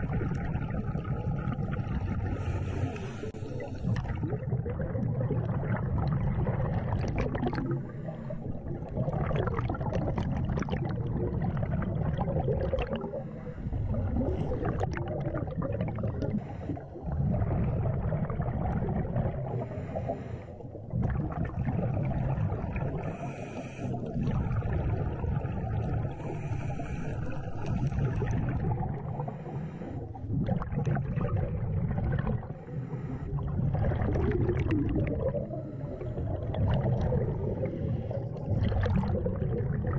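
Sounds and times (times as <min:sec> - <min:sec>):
underwater regulator bubbling: 0:00.0 - 0:39.9.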